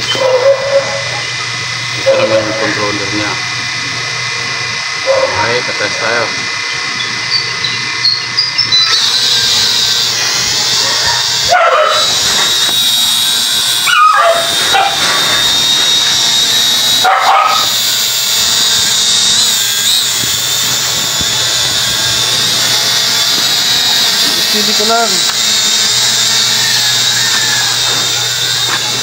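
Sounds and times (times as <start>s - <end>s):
drone motors whining: 0.0s - 29.0s
dog barking: 0.1s - 1.2s, 10.8s - 12.1s, 13.9s - 15.1s, 17.0s - 17.7s.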